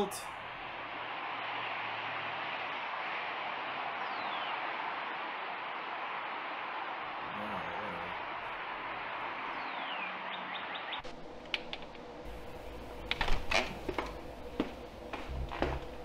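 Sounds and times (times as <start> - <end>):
door opening: 13.0 - 14.2
footsteps: 13.4 - 16.0.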